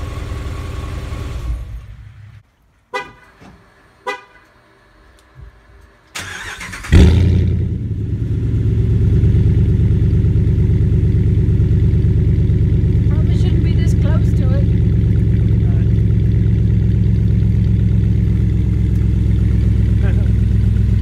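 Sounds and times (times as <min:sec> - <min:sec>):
pickup truck engine idling: 0:06.3 - 0:21.0.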